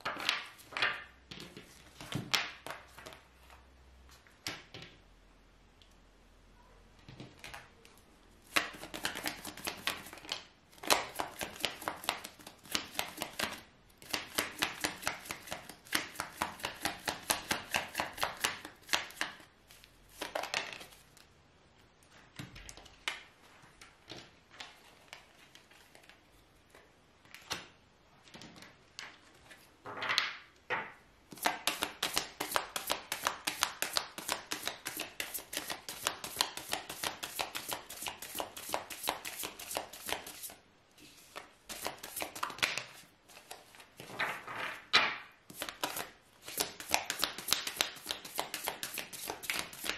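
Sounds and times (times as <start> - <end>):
cards being shuffled: 8.5 - 21.3, 31.3 - 44.4, 45.5 - 49.9.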